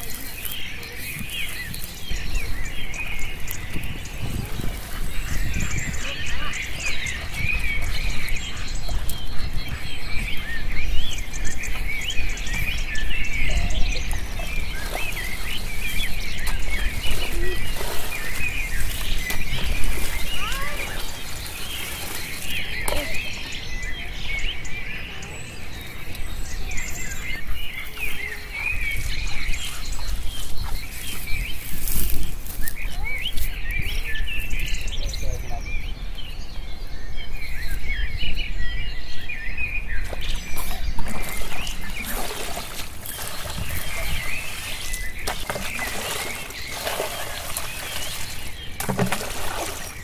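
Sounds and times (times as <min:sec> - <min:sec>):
splashing in shallow water: 0:00.0 - 0:23.6, 0:40.0 - 0:50.0
small birds chirping: 0:00.0 - 0:50.0.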